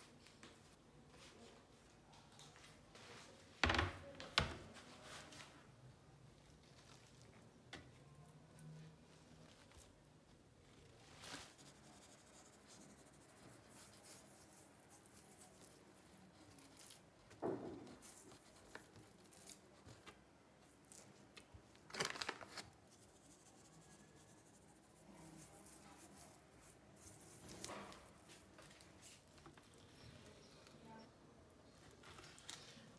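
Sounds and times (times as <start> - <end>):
papery rustle: 8.7 - 30.3, 31.7 - 32.9.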